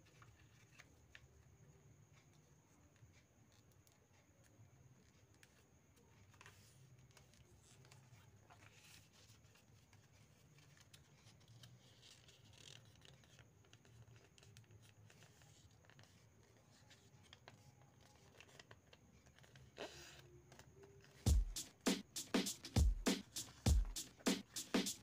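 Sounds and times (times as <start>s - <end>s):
paper rustling and creasing: 0.0s - 1.2s, 5.0s - 21.2s.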